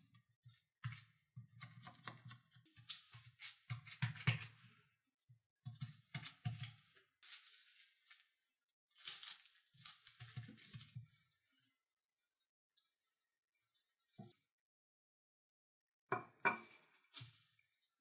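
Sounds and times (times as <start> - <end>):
crinkling and scraping handling noise: 5.7 - 11.7.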